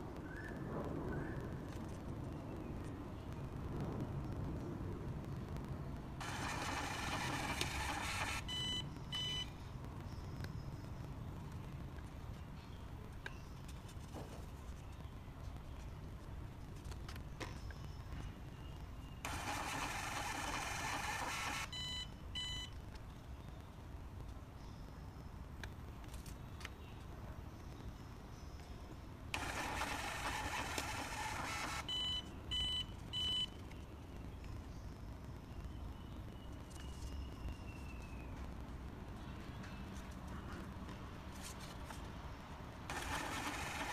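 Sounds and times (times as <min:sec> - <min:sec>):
receipt printer whirring: 0:06.2 - 0:08.5, 0:19.3 - 0:21.7, 0:29.4 - 0:31.9, 0:42.9 - 0:43.9
terminal beeps: 0:06.2 - 0:09.6, 0:21.3 - 0:22.7, 0:31.8 - 0:33.6.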